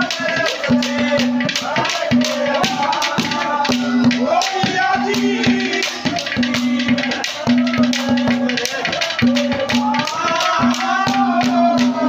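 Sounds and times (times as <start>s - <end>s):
jingling hand percussion: 0.0s - 12.0s.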